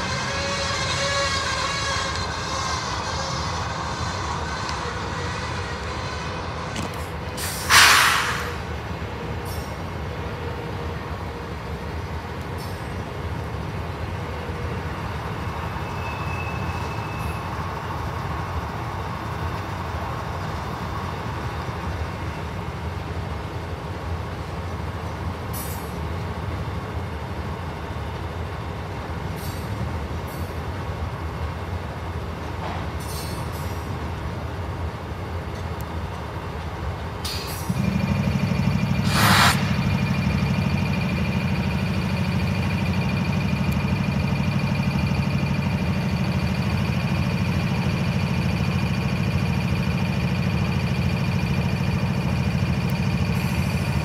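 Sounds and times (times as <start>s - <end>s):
faint short squeal: 0.0s - 8.7s, 15.6s - 17.8s, 37.3s - 43.5s
locomotive engine and wheel rumble: 0.0s - 54.0s
sudden loud hiss: 7.4s - 8.6s, 39.0s - 40.1s.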